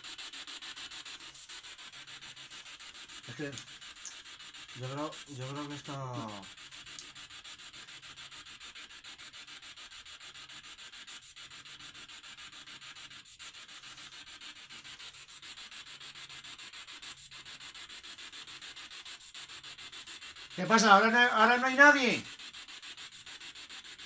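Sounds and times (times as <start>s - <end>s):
static-like hiss with flutter: 0.0s - 24.0s.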